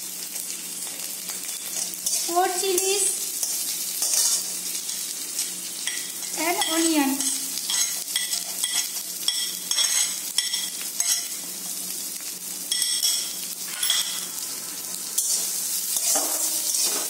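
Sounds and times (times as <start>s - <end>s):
food sizzling in hot oil: 0.0s - 17.0s
spatula scraping metal pan: 3.4s - 4.5s, 15.2s - 17.0s.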